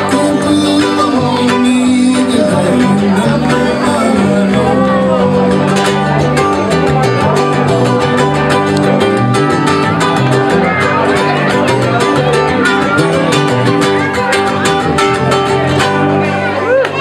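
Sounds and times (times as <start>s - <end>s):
people singing into microphones: 0.0s - 8.1s
guitar strumming: 0.0s - 17.0s
live band playing: 0.0s - 17.0s.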